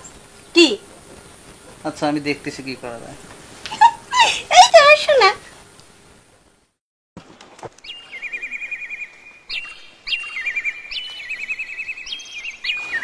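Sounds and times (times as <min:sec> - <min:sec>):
bird singing trills: 0:07.8 - 0:13.0.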